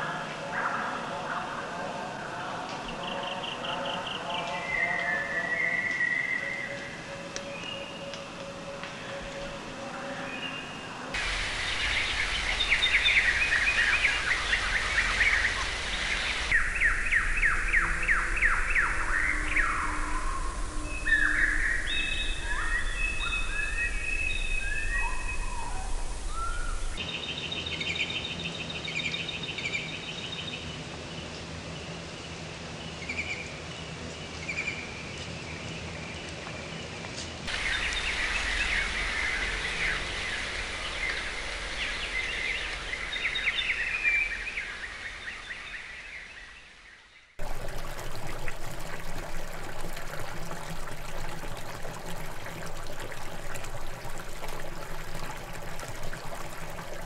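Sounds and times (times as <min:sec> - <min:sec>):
songbirds chirping: 0:00.1 - 0:57.0
trickling water: 0:11.1 - 0:27.0, 0:37.5 - 0:44.7, 0:47.4 - 0:57.0.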